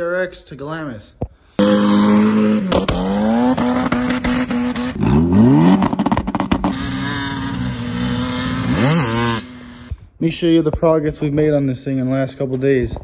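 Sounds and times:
car engine revving hard: 1.6 - 9.9.

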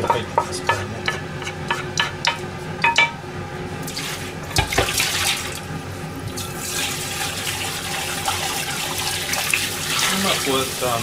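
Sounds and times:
cookware knock: 2.0 - 3.2.

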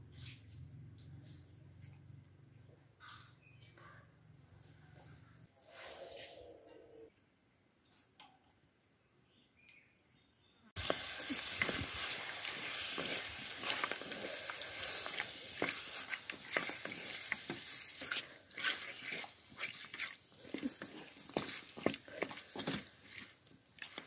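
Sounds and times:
chicken sizzling in hot oil: 10.8 - 23.3
oil crackling spatters: 10.8 - 24.0
spatula scraping a pan: 10.8 - 24.0.

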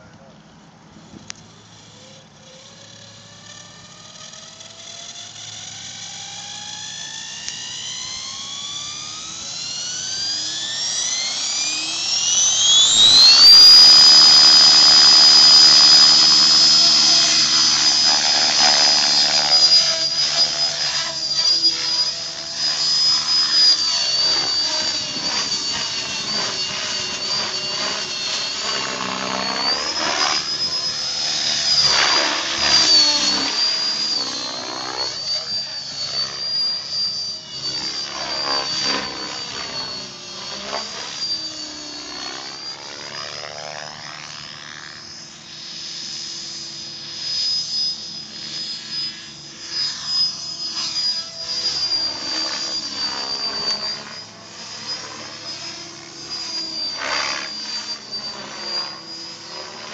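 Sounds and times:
electric motor whine: 0.0 - 59.9
rotor blades chopping air: 7.5 - 41.0.

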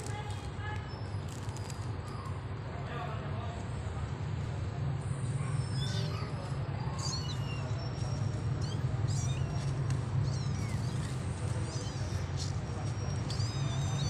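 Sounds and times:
kittens mewing: 5.5 - 14.0.

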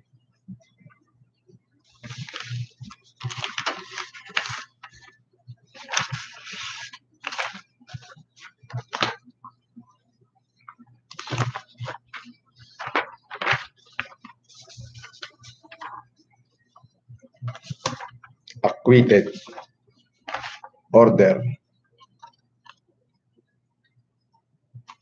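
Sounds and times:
paper rustling and shuffling: 1.9 - 5.1, 5.8 - 9.2, 11.1 - 16.0, 17.5 - 18.2, 19.0 - 19.7, 20.3 - 20.7.

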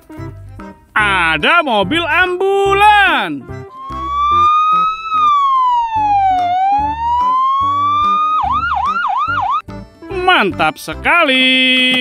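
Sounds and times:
ambulance siren wailing and yelping: 3.7 - 9.6.

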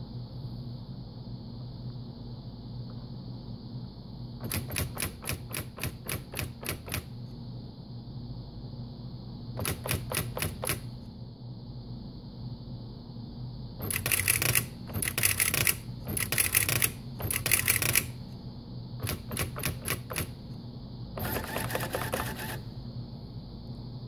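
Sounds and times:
steady electrical hum: 0.0 - 24.0
paper advancing rattle: 4.4 - 7.1, 9.6 - 10.9, 13.8 - 18.2, 19.0 - 20.4, 21.2 - 22.6
typewriter print hammer strikes: 4.4 - 7.1, 9.6 - 10.9, 13.8 - 18.1, 19.0 - 20.4, 21.2 - 22.6.

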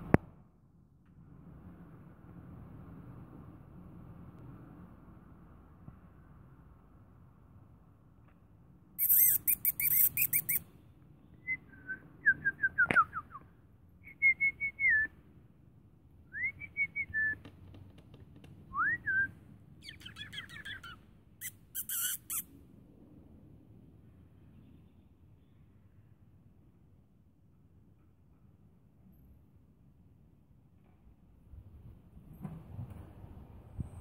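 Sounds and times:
songbird singing: 9.0 - 10.6, 18.7 - 22.4.

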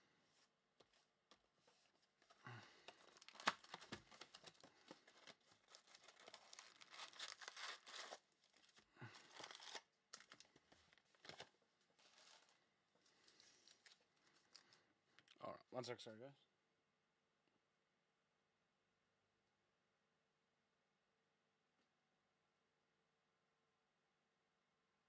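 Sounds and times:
foil packs crinkling and rustling: 1.8 - 14.8
cardboard tearing: 2.8 - 10.5.

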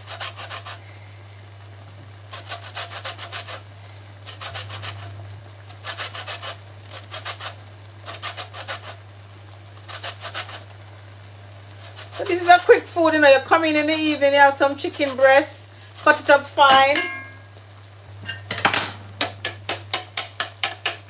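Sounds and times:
orange rind grated on metal grater: 0.0 - 0.8, 2.3 - 3.6, 4.2 - 9.1, 9.8 - 10.8, 11.7 - 12.7.

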